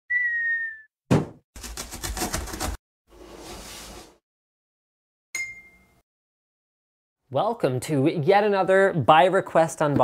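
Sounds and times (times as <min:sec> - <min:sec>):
heavy cartoon thump: 0:01.1 - 0:01.4.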